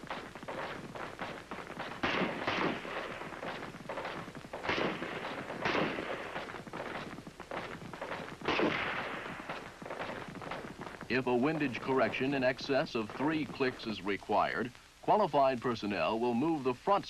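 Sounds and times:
rifle shots with echo: 0:02.0 - 0:06.5, 0:08.4 - 0:09.7.

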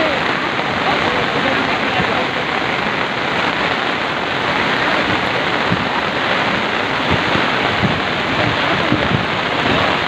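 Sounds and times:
floodwater rushing: 0:00.0 - 0:10.0
rain falling: 0:00.0 - 0:10.0.

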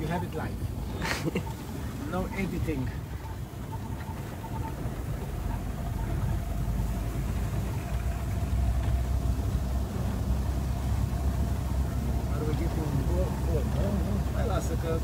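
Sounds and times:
car engine and road noise: 0:00.0 - 0:15.0.

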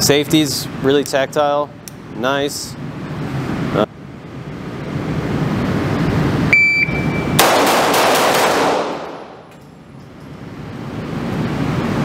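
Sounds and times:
shot timer beep: 0:06.5 - 0:07.4
pistol shots indoors: 0:07.0 - 0:09.7.

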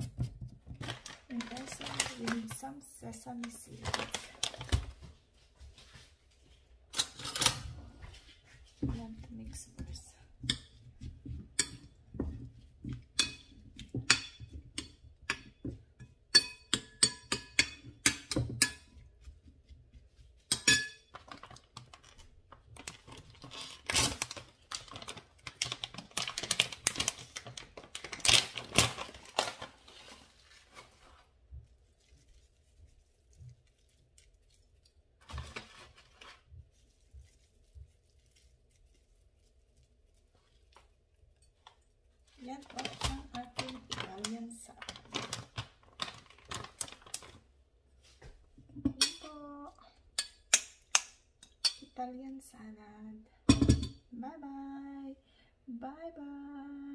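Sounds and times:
metal spoon clinking on ceramic bowl: 0:14.1 - 0:18.9, 0:20.5 - 0:21.1, 0:48.9 - 0:49.3, 0:51.4 - 0:52.0.

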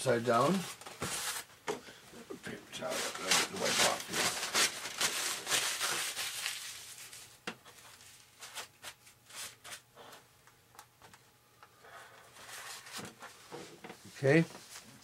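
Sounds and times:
paper towel rustling and rubbing: 0:02.7 - 0:09.8, 0:12.3 - 0:15.0.

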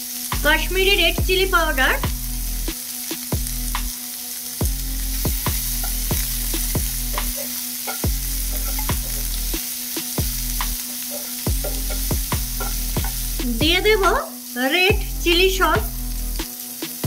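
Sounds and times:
vegetables sizzling in hot oil: 0:00.0 - 0:17.0
spatula scraping pan: 0:05.2 - 0:14.3.

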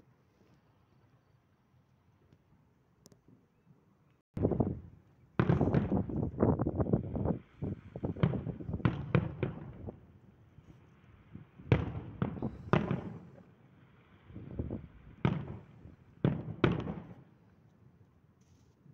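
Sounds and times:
firework crackle: 0:05.4 - 0:17.3
fireworks bursting: 0:05.4 - 0:17.3.

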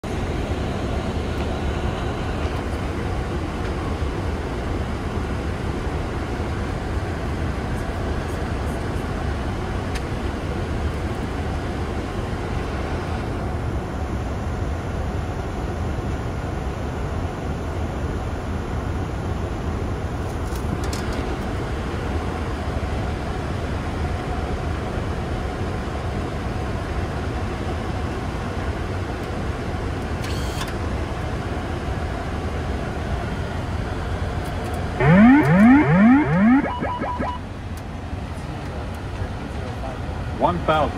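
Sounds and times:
airflow and engine noise: 0:00.0 - 0:40.9
rising electronic tones: 0:35.0 - 0:37.4.

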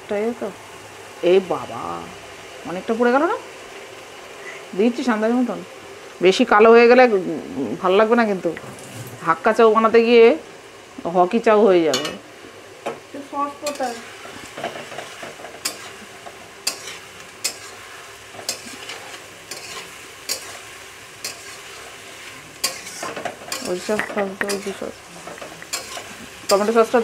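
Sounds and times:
vegetables sizzling in hot oil: 0:00.0 - 0:27.0
metal spatula scraping a wok: 0:13.7 - 0:27.0.

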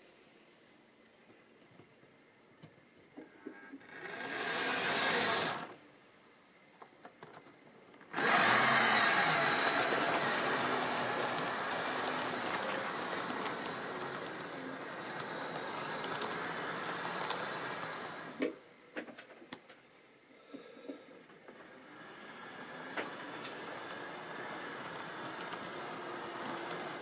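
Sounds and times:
model train motor whirring: 0:03.8 - 0:05.8, 0:08.1 - 0:18.5, 0:21.5 - 0:27.0
train wheels rattling over rails: 0:04.0 - 0:05.7, 0:08.1 - 0:18.5, 0:21.9 - 0:27.0.

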